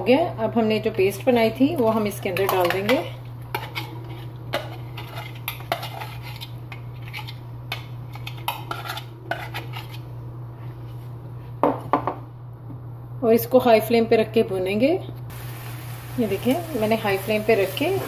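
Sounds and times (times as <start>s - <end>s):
utensil scraping a pan: 3.5s - 7.4s, 8.1s - 10.1s.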